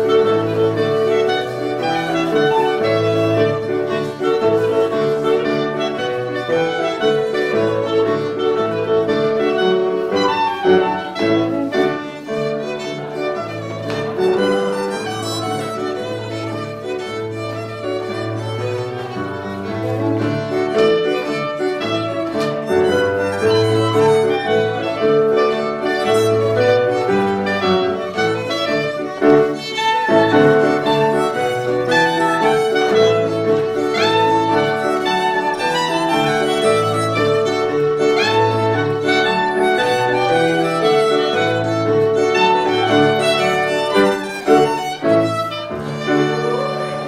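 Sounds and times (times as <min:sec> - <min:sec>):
fiddle dance tune: 0:00.0 - 0:47.0.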